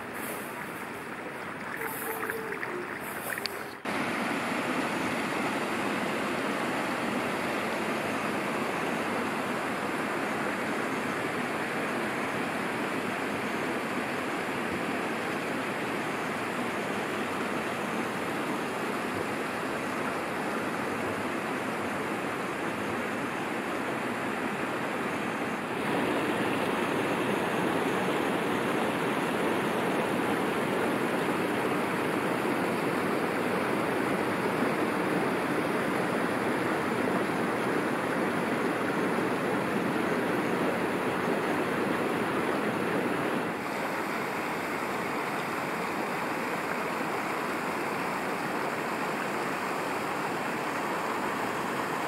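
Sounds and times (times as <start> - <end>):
running and splashing pool water: 0.0 - 4.4.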